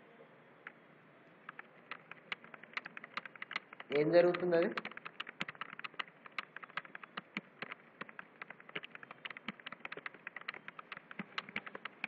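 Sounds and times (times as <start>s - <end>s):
computer keyboard typing: 1.5s - 12.0s.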